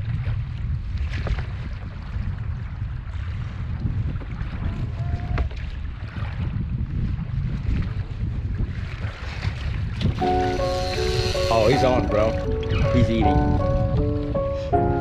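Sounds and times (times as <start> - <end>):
water sloshing against hull: 0.0 - 15.0
wind buffeting microphone: 0.0 - 15.0.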